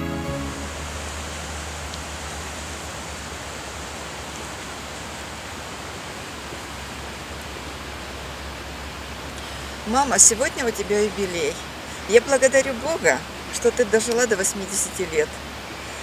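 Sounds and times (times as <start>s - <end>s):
gentle music: 0.0s - 2.0s
low hum: 0.0s - 3.2s.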